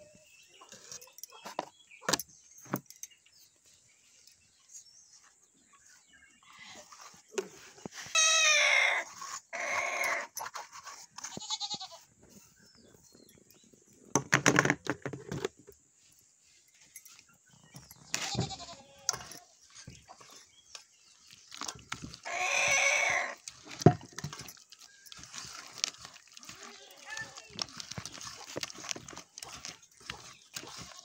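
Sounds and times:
goats bleating: 0:11.4 - 0:12.0, 0:18.2 - 0:19.1.

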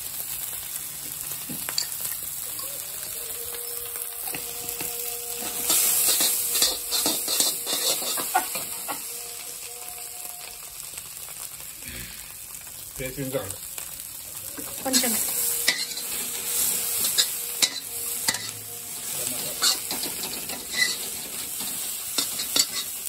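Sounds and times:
vegetables sizzling in a pan: 0:00.0 - 0:23.0
steel ladle scraping: 0:04.3 - 0:09.0, 0:14.6 - 0:23.0.

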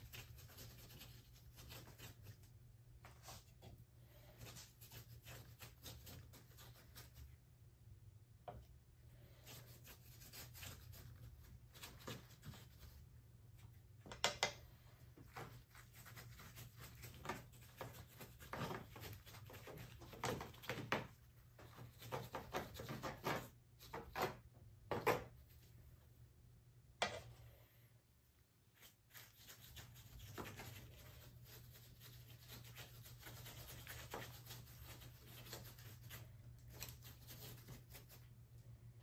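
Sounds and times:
scratchy rubbing on plaster: 0:00.0 - 0:07.4, 0:09.2 - 0:13.2, 0:15.2 - 0:24.4, 0:28.8 - 0:38.3.

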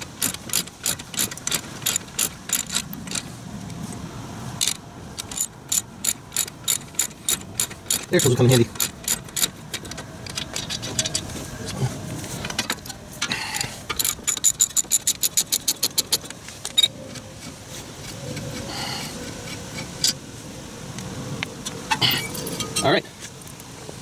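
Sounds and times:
socket ratchet clicking: 0:00.0 - 0:03.3, 0:04.6 - 0:11.3, 0:13.6 - 0:17.0.

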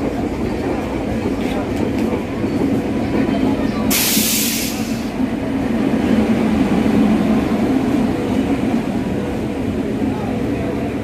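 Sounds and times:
train rumbling past: 0:00.0 - 0:11.0
loud hiss: 0:03.9 - 0:05.2.

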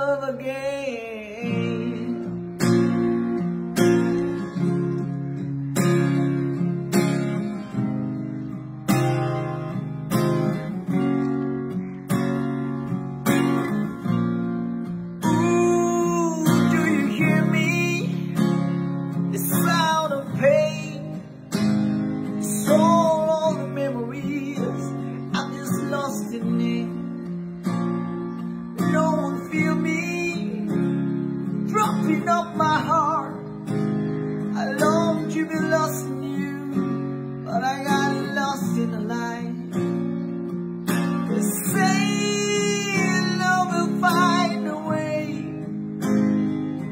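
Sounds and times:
man singing: 0:00.0 - 0:04.9, 0:15.2 - 0:27.3, 0:28.8 - 0:33.8, 0:34.4 - 0:39.9, 0:41.1 - 0:45.8
acoustic guitar strummed: 0:00.0 - 0:46.9.

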